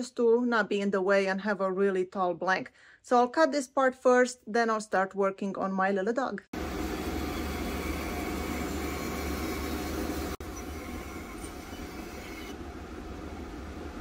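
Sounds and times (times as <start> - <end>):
bandsaw running: 6.6 - 12.6.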